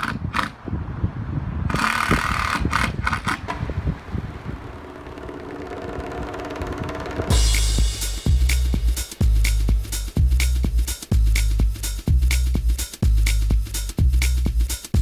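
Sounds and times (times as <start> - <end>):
cordless drill bursts: 1.7 - 3.4
low outdoor rumble: 3.3 - 15.0
electronic music with drum beat: 6.2 - 15.0.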